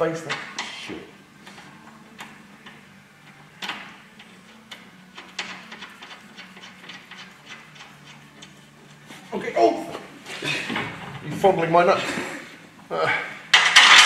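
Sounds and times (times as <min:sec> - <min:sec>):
metallic clicks of nuts and bolts: 0:03.6 - 0:08.6, 0:13.5 - 0:14.0.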